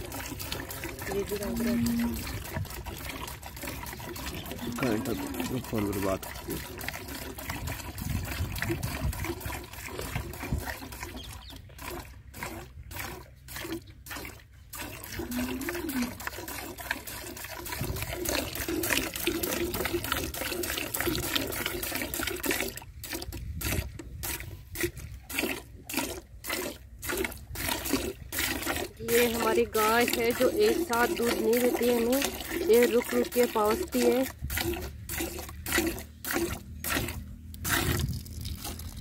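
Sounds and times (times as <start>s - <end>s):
milk squirting into pail: 0.0s - 39.0s.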